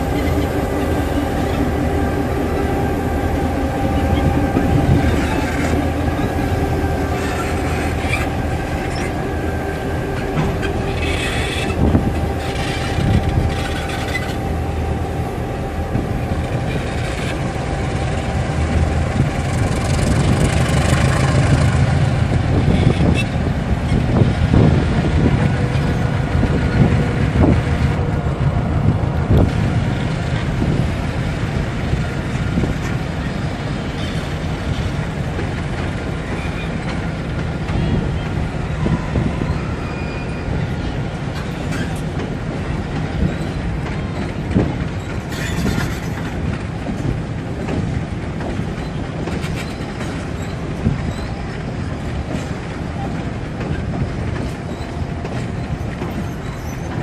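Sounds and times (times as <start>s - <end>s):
diesel locomotive engines droning: 0.0s - 57.0s
wheels clanking and knocking: 41.3s - 57.0s.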